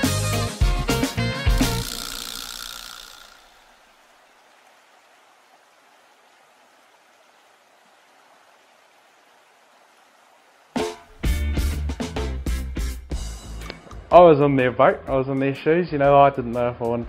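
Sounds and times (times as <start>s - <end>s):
loud music: 0.0s - 3.0s
flowing river water: 1.7s - 11.3s.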